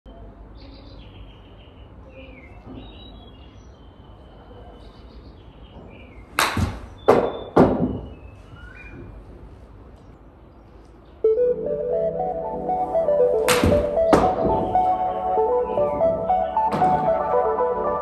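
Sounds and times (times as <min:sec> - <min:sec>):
faint bird chirps: 0:00.1 - 0:06.3
loud sharp smacks: 0:06.4 - 0:07.4, 0:13.5 - 0:14.3
golf club striking ball: 0:13.5 - 0:14.3.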